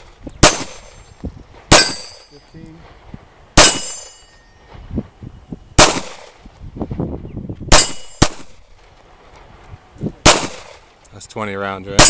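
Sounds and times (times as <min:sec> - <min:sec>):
pistol shots: 0:00.4 - 0:01.0, 0:01.7 - 0:02.3, 0:03.6 - 0:04.2, 0:05.8 - 0:06.3, 0:07.7 - 0:08.6, 0:10.2 - 0:10.8
steel plate ringing: 0:00.4 - 0:02.7, 0:03.6 - 0:04.7, 0:07.7 - 0:08.3.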